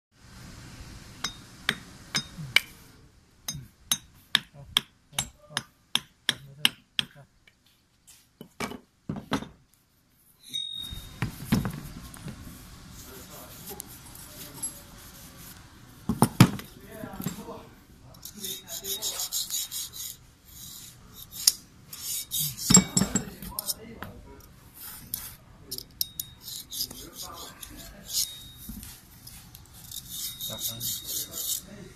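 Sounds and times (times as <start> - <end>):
steady hiss: 0.2 - 8.4, 9.7 - 23.8
metal scraper scraping grime: 18.2 - 23.8, 26.1 - 31.8.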